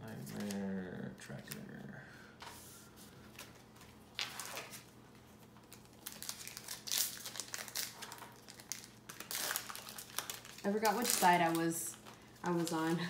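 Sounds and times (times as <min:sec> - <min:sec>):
cards and wrappers crinkling: 0:00.0 - 0:00.7, 0:03.3 - 0:13.0.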